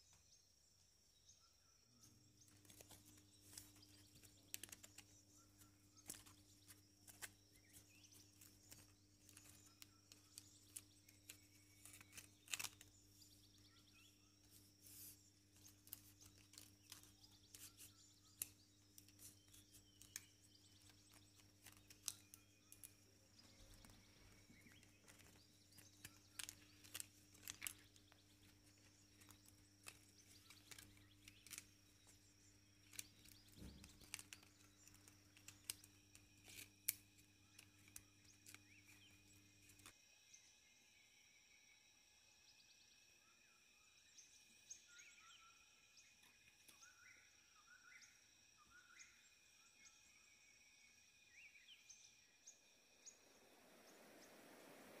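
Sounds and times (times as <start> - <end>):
faint steady hum: 0.0 - 55.0
bamboo strips clicking: 2.5 - 13.3, 14.9 - 39.9.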